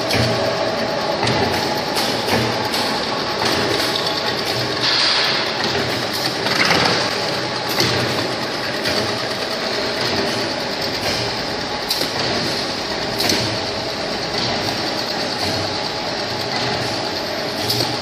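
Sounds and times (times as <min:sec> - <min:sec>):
machinery whirring: 0:00.0 - 0:18.0
sharp mechanical clicks: 0:01.2 - 0:13.7.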